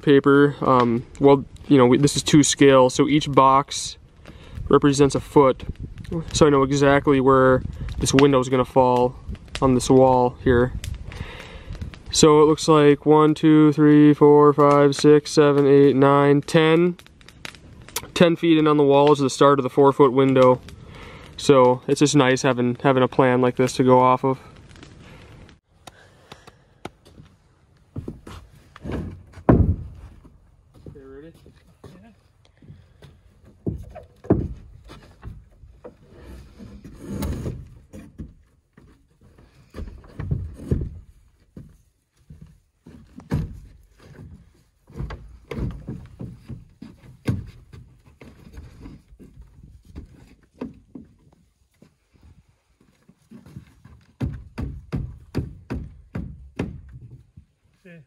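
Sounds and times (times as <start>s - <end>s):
dull thuds of lumber set down: 27.9s - 31.0s, 32.6s - 52.0s, 53.1s - 57.4s
sharp wooden knocks: 28.0s - 30.1s, 32.7s - 36.0s, 43.2s - 51.2s, 53.8s - 57.2s
hammer striking wood: 28.9s - 30.0s, 33.6s - 34.6s, 54.2s - 57.0s.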